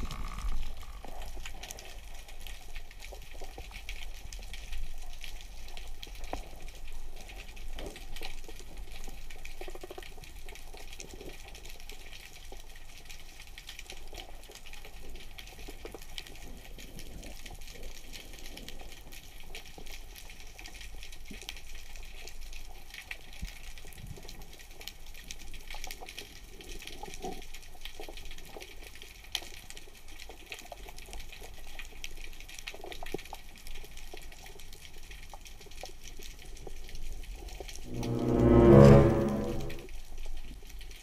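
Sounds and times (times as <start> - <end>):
underwater clicks and ticks: 0.0 - 37.7
low underwater rumble: 37.9 - 39.8.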